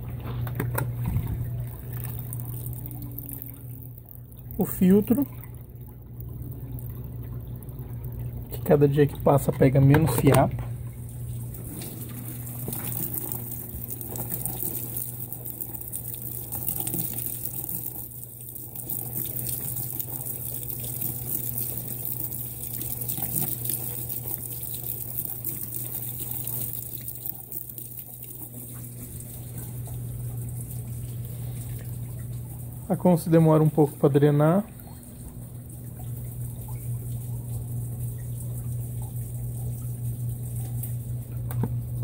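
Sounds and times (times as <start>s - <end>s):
low electric motor hum: 0.0s - 42.0s
water pouring and splashing: 0.0s - 42.0s.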